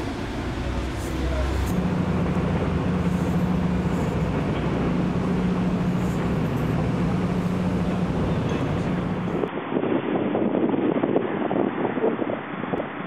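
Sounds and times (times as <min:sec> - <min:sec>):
train rumble inside carriage: 0:00.0 - 0:09.5.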